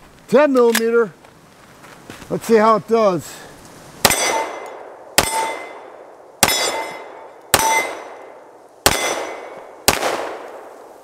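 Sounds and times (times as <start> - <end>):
pistol shots: 4.0 - 10.7
steel target plate clanging: 4.1 - 8.3.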